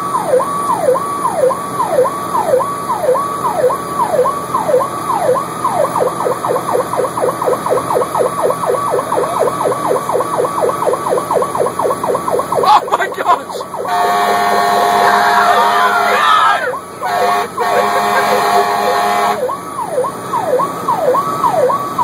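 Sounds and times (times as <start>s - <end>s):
electronic siren sweeping: 0.0s - 22.0s
steady horn-like tone: 13.8s - 16.2s, 17.0s - 19.5s.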